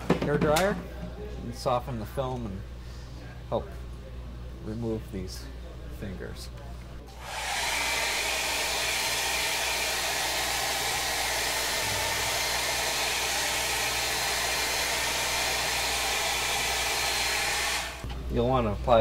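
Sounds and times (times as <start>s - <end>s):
hair dryer running: 7.1s - 18.1s.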